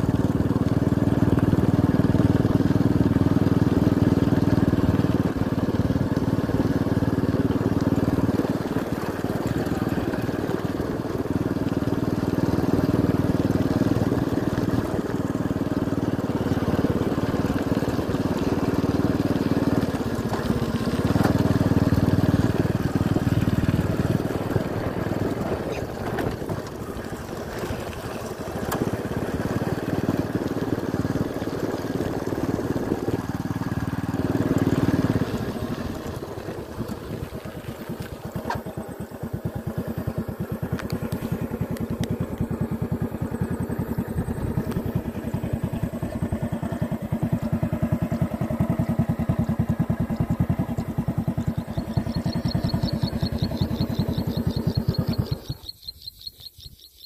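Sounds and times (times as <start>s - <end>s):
motorcycle engine running: 0.0s - 57.0s
crickets chirping: 51.4s - 57.0s.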